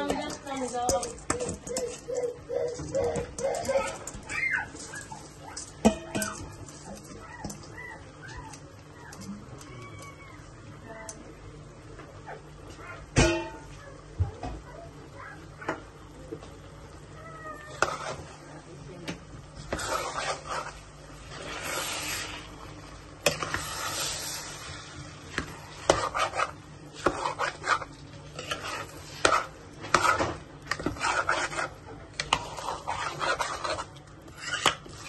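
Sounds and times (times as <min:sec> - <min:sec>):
spoon scraping metal pot: 0:00.0 - 0:07.7, 0:17.7 - 0:18.4, 0:19.6 - 0:22.4, 0:23.2 - 0:24.7, 0:25.3 - 0:35.0.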